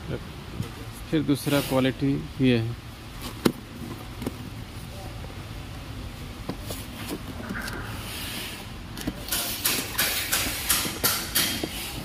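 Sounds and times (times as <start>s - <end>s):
cardboard rustling and scraping: 3.1s - 5.0s, 6.4s - 9.6s.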